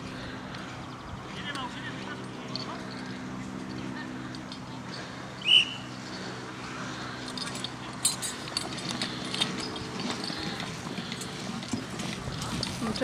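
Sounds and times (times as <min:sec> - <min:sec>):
running footsteps: 0:04.4 - 0:13.0
sharp whistle blast: 0:05.4 - 0:05.9
equipment clicking and clinking: 0:07.1 - 0:13.0.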